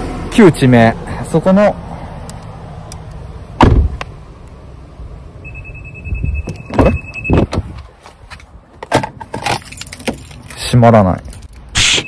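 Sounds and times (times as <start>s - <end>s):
car door thump: 3.6s - 4.0s, 6.4s - 7.7s
knocks of car door handling: 3.6s - 4.0s.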